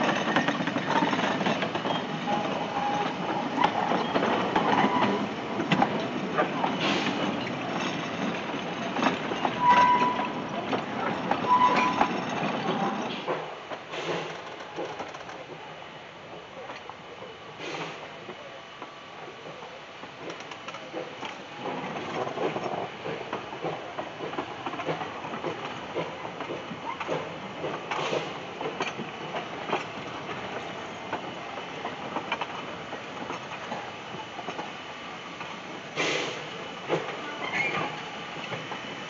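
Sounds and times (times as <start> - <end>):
wheels clanking over rail joints: 0.0 - 15.6.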